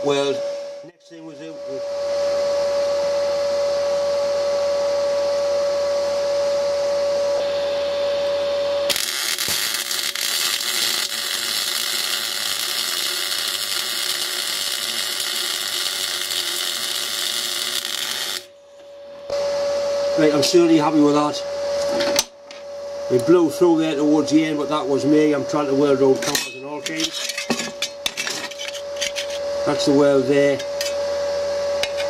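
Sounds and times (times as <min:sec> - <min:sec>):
steady hum: 0:00.0 - 0:32.0
welding arc crackling hiss: 0:08.9 - 0:18.5.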